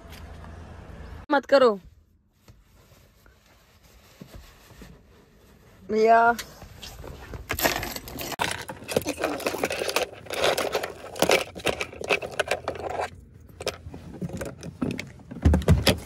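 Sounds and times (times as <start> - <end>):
loose items rustling: 5.0 - 16.0.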